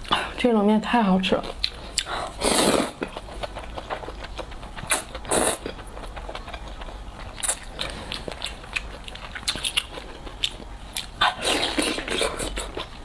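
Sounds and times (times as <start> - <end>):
chewing with wet mouth clicks: 1.4 - 2.2, 2.9 - 13.0
person slurping noodles: 2.3 - 3.0, 4.9 - 5.6, 11.2 - 12.8.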